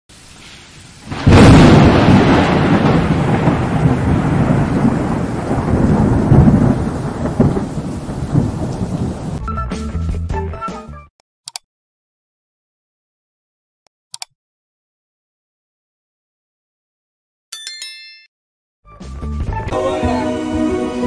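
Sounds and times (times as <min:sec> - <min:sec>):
rain-like hiss: 0:00.1 - 0:01.9
thunder crack and rumble: 0:01.1 - 0:09.4.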